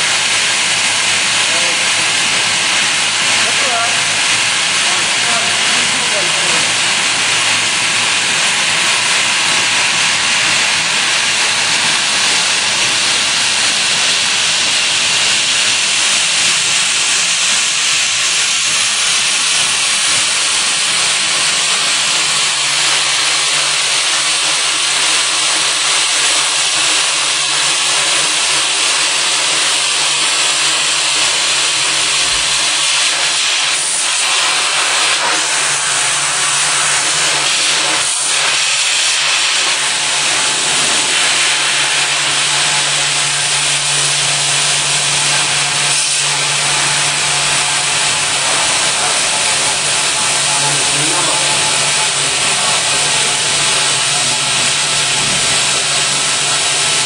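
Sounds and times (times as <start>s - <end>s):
compressed air hissing: 0.0s - 57.0s.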